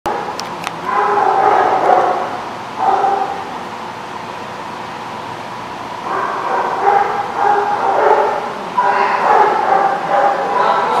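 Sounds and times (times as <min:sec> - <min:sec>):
small dogs barking: 0:00.1 - 0:03.6, 0:06.0 - 0:11.0.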